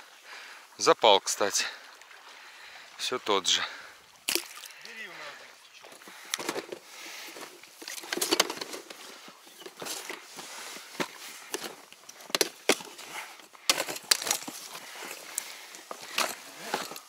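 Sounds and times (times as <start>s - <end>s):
boxes and plastic case rustling: 6.3s - 17.0s.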